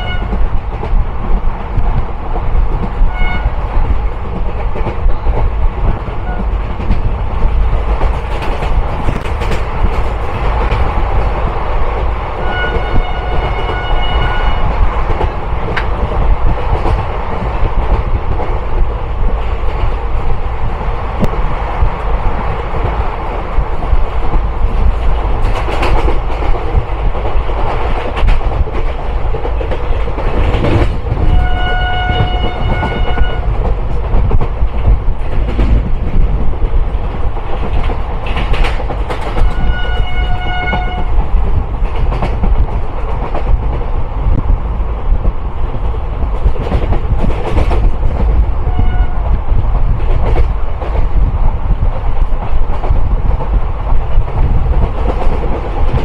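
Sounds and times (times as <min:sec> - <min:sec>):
locomotive horn: 0:00.0 - 0:00.4, 0:03.1 - 0:03.6, 0:06.2 - 0:06.5, 0:12.4 - 0:14.7, 0:31.2 - 0:33.6, 0:39.4 - 0:41.2, 0:48.6 - 0:49.3
train low rumble: 0:00.0 - 0:56.0
train rail clatter: 0:00.0 - 0:56.0.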